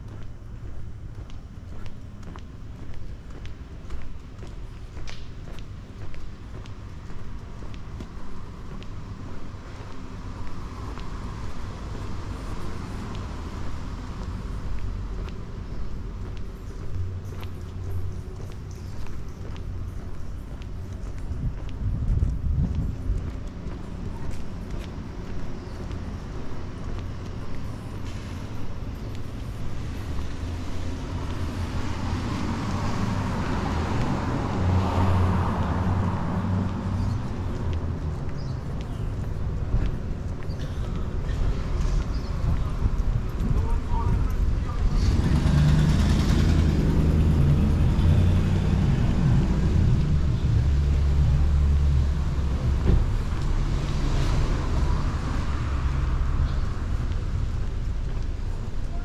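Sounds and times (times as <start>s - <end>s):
traffic rumble: 0.0s - 59.0s
vehicle engine humming: 0.0s - 59.0s
vehicle passing close: 44.4s - 57.8s.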